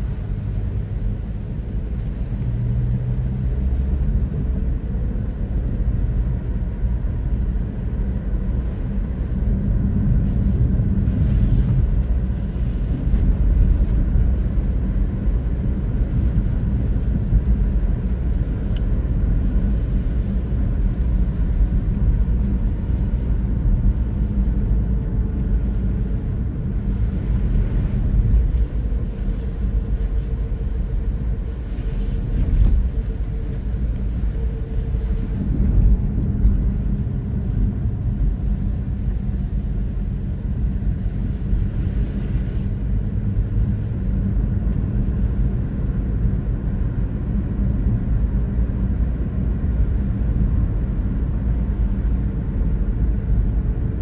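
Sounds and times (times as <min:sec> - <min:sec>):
car driving on wet road: 0:00.0 - 0:54.0.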